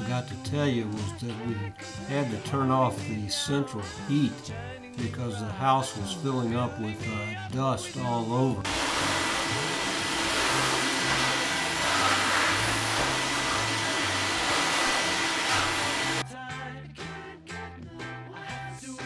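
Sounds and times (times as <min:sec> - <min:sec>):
background music: 0:00.0 - 0:19.0
vacuum cleaner running: 0:08.6 - 0:16.2.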